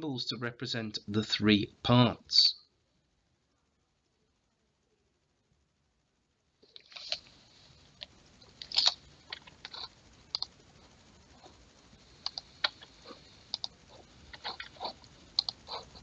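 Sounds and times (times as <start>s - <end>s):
faint steady hiss: 0.0s - 16.0s
mouse and keyboard clicks: 8.0s - 10.6s, 12.2s - 12.9s, 13.5s - 16.0s.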